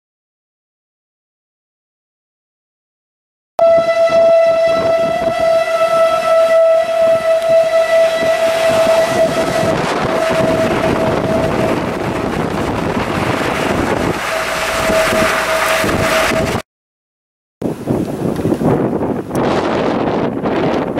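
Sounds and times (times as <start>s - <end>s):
tornado warning siren: 3.6s - 16.6s
wind rushing across microphone: 3.6s - 16.6s, 17.6s - 20.9s.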